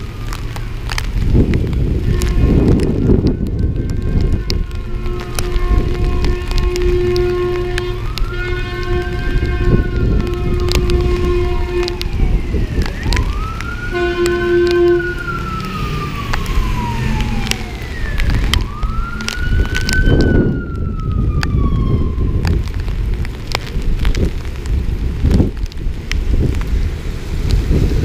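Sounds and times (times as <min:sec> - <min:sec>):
fire engine siren wailing: 0:00.0 - 0:24.5
road noise: 0:00.0 - 0:28.0
steady rain: 0:00.0 - 0:28.0
air horn blast: 0:02.0 - 0:02.8, 0:04.0 - 0:12.0, 0:13.9 - 0:15.2.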